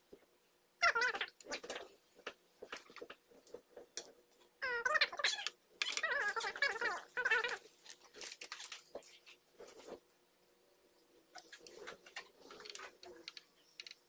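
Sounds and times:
high-pitched voice-like calls: 0.8s - 1.3s, 4.6s - 7.6s.

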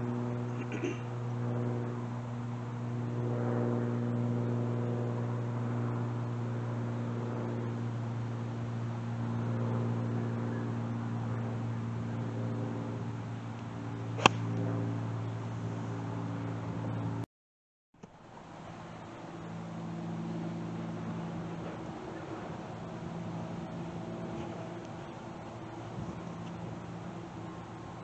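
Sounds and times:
steady low hum: 0.0s - 17.2s, 18.0s - 28.0s
golf club striking ball: 14.2s - 14.6s.

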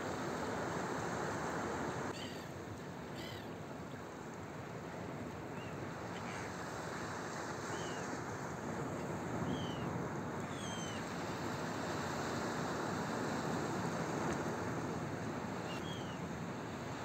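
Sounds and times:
rough surf rushing: 0.0s - 2.6s, 4.6s - 17.0s
wind: 0.0s - 17.0s
gulls calling: 2.1s - 2.5s, 3.2s - 3.5s, 10.5s - 11.1s.

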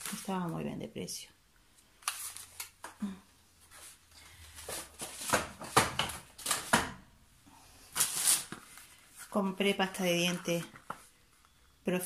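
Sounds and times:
plastic bag rustling: 7.8s - 11.2s.

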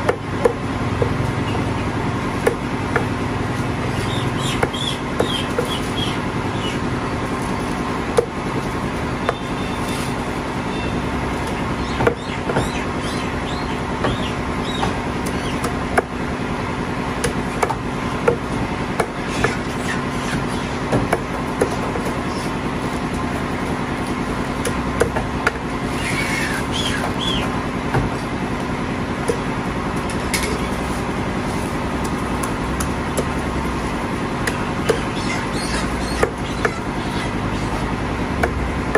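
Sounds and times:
steady mechanical hum: 0.0s - 38.9s
cleaver chopping on wooden block: 2.4s - 3.1s, 11.9s - 12.8s, 17.2s - 18.4s, 19.0s - 19.6s, 34.4s - 35.1s.

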